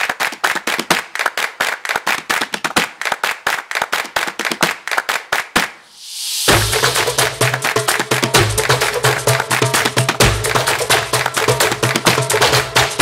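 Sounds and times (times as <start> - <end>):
rapid hand claps: 0.0 - 5.8, 6.5 - 13.0
upbeat percussion music: 5.5 - 13.0.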